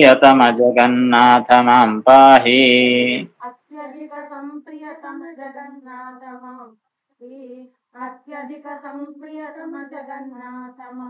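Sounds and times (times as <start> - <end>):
woman chanting devotional verses: 2.8 - 11.0.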